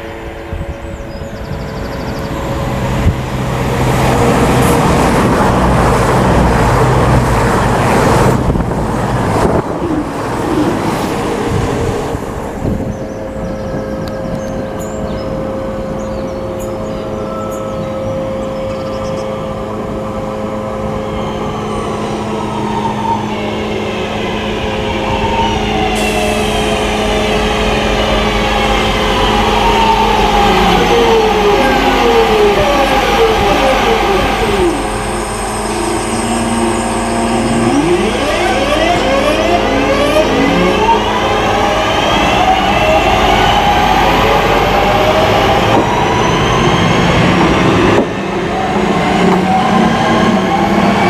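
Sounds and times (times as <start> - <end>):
electric train motor whine: 26.0 - 45.7.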